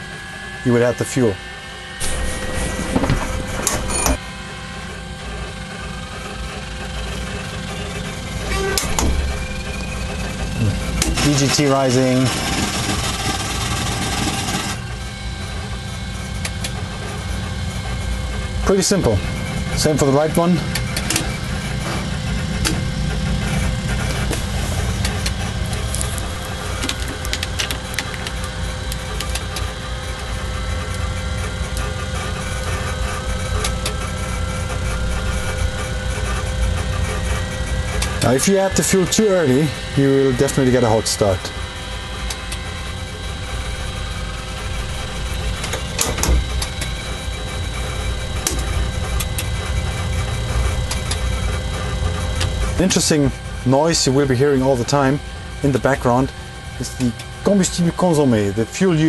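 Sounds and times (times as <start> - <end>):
jet engine idling rumble: 2.0 - 59.0.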